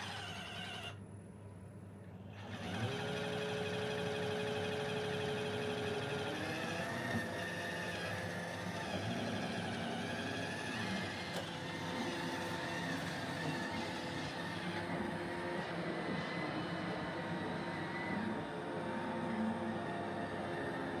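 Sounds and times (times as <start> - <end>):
robot vacuum whirring: 0.0 - 1.0, 2.4 - 21.0.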